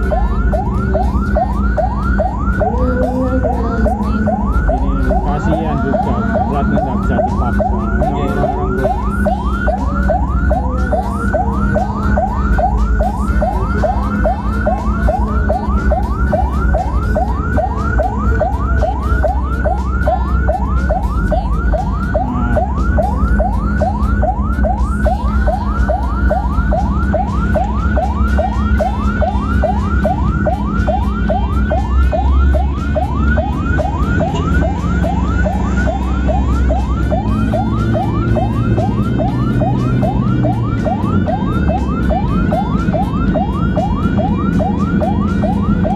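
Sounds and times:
ambulance siren yelping: 0.0s - 45.9s
engine and road rumble: 0.0s - 45.9s.

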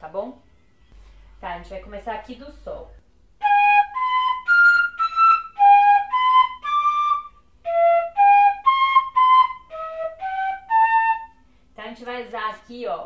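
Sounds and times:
fife playing melody: 3.4s - 11.4s.

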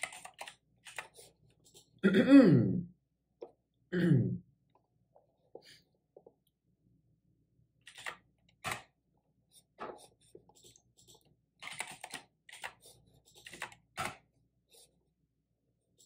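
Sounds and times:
typing on computer keyboard: 0.0s - 1.1s, 11.6s - 12.8s.

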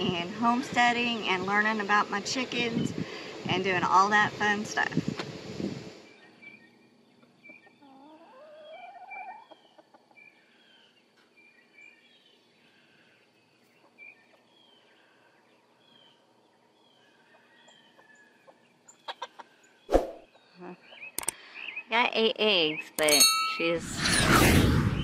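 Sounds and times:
faint high bird chirps: 6.1s - 23.2s
chicken calling: 7.2s - 10.2s, 17.2s - 19.6s
sharp clicks: 21.2s - 21.4s.

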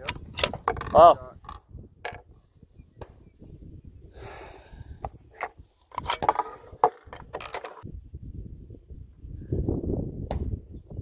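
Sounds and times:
rifle bolt clicks and clacks: 0.0s - 1.6s, 5.9s - 7.8s
rifle handling scuffle: 5.4s - 7.8s.

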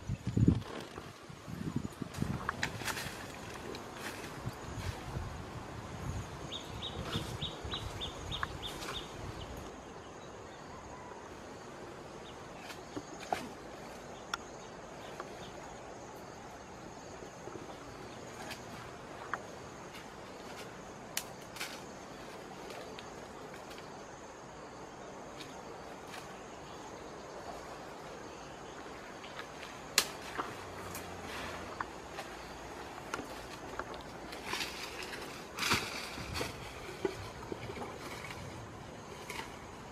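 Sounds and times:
twigs snapping: 21.1s - 21.8s, 29.9s - 31.1s, 33.1s - 37.3s
footsteps in dry leaves: 32.9s - 37.0s.

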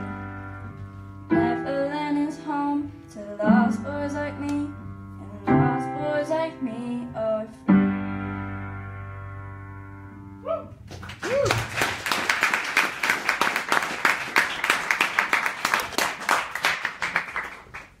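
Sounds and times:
piano chord: 0.0s - 10.5s
person calling out: 10.4s - 10.8s
audience applauding: 10.9s - 18.0s.

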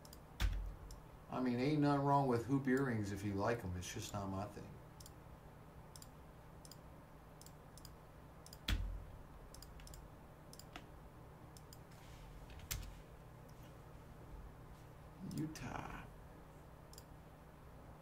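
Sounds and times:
computer mouse clicks: 0.0s - 1.0s, 5.9s - 6.8s, 7.4s - 8.9s, 9.5s - 10.9s, 11.5s - 11.9s, 16.9s - 17.1s.

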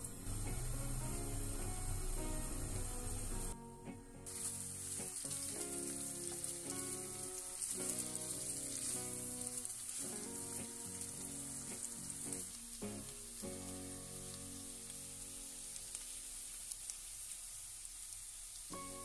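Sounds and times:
chicken sizzling in a frying pan: 0.0s - 3.6s, 4.2s - 19.0s
soft background music: 0.0s - 16.2s, 18.7s - 19.0s
spatula stirring: 4.3s - 12.7s.

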